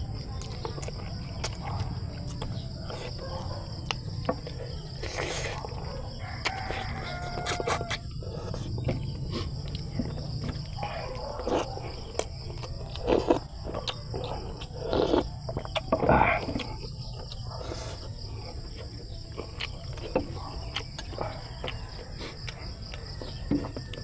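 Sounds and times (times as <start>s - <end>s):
high insect drone: 0.0s - 24.0s
man eating with lip smacks: 3.8s - 5.8s.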